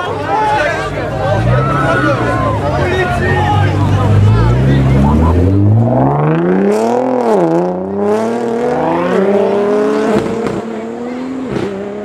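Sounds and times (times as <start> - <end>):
car engine accelerating hard: 0.1 - 12.0.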